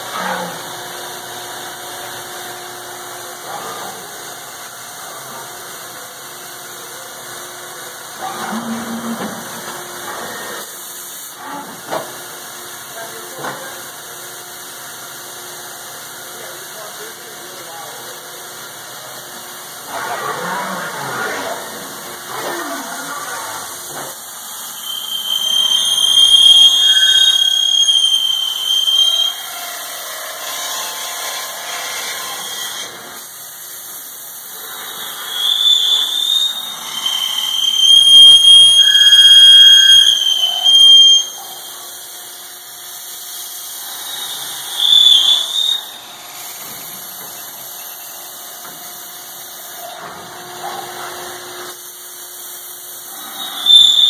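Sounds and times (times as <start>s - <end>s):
steady machine noise: 0.0s - 32.4s
drill squealing cutting steel: 23.4s - 30.0s, 34.5s - 42.2s, 43.4s - 48.5s, 53.0s - 54.0s.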